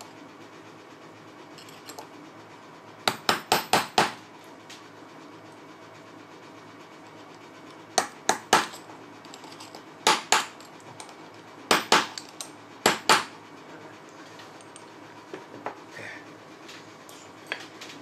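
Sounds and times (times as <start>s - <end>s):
hammer tapping steel punch: 3.1s - 4.2s, 8.0s - 8.8s, 10.0s - 10.6s, 11.7s - 13.3s.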